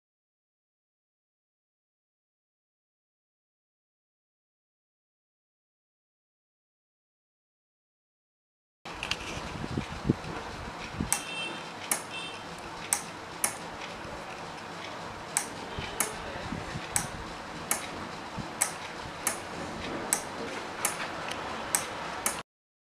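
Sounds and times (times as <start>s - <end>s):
relay clicking: 10.8s - 16.2s, 16.8s - 18.0s, 18.6s - 22.4s.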